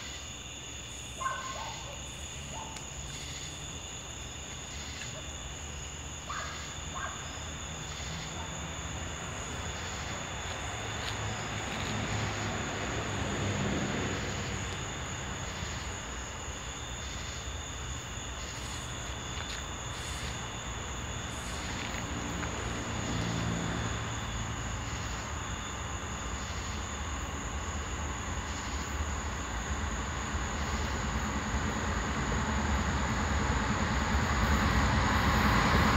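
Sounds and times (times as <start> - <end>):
freight train rumbling: 29.7 - 35.9.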